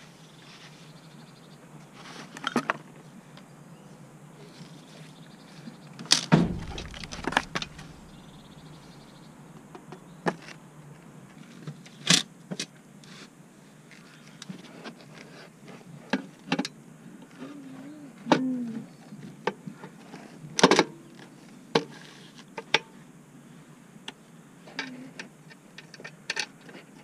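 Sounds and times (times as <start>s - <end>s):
heavy thud: 6.3s - 9.6s.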